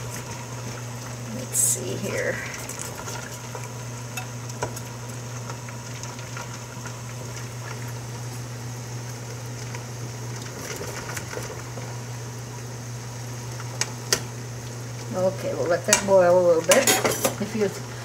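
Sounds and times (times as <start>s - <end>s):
water boiling in pot: 0.0s - 18.0s.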